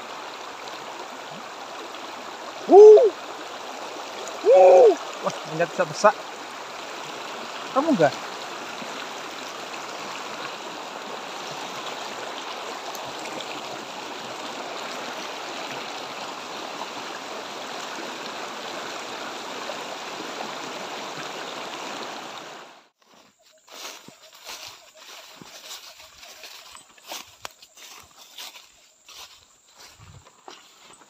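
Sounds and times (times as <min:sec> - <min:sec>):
river rushing over riffles: 0:00.0 - 0:22.8.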